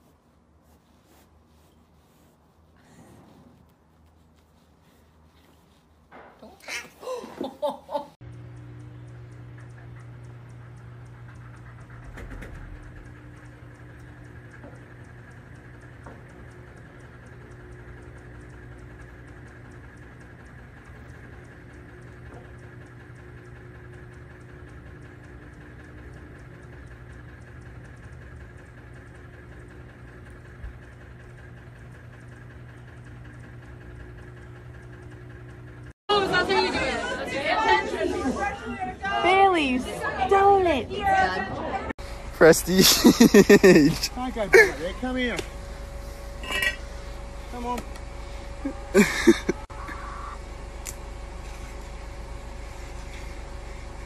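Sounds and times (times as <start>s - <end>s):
steady hum with constant tones: 26.4s - 54.0s.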